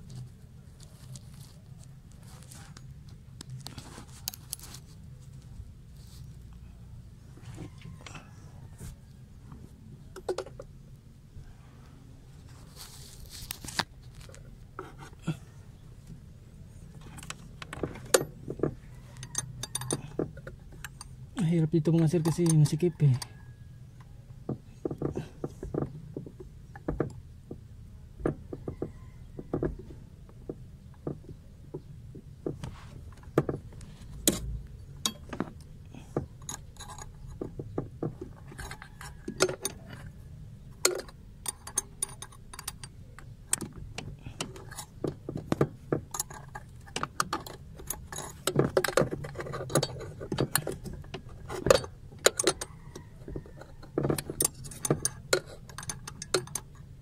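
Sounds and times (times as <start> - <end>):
metal clicks and clinks: 19.1 - 21.2, 21.8 - 23.4, 34.2 - 35.7, 36.4 - 37.6, 40.8 - 57.0.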